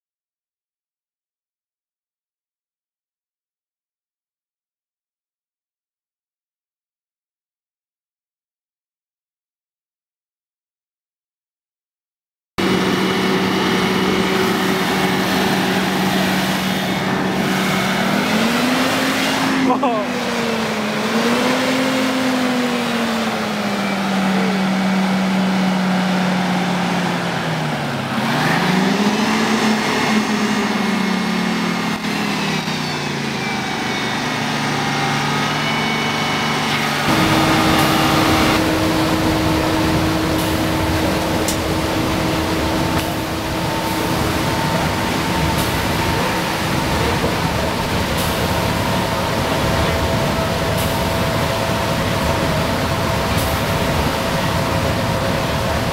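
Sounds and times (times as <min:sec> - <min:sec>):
bus engine drone from inside: 0:12.6 - 0:55.9
diesel bus pulling away: 0:12.6 - 0:55.9.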